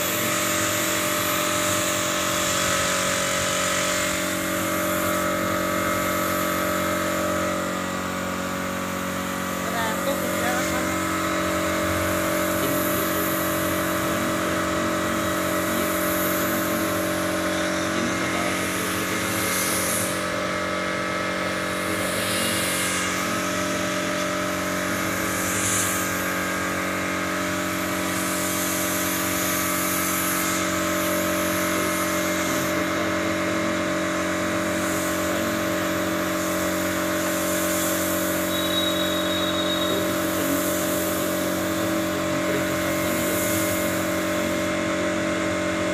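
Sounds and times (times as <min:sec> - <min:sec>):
spray gun hissing: 0:00.0 - 0:44.7
air compressor motor running: 0:00.0 - 0:45.9.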